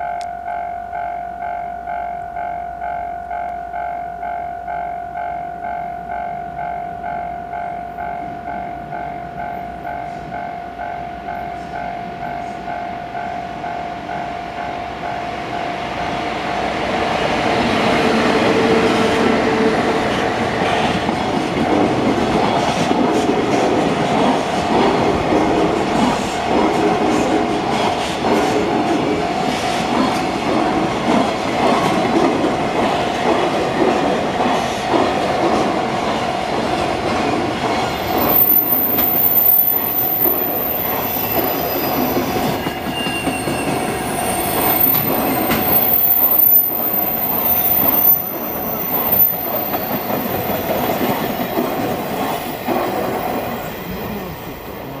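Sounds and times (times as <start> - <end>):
freight train rumble and clatter: 8.0 - 55.0
train wheel squeal: 37.9 - 55.0.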